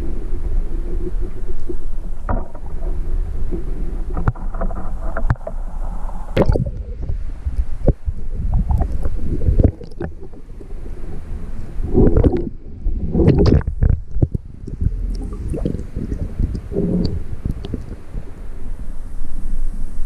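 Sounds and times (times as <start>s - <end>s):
muffled underwater stream rumble: 0.0s - 20.0s.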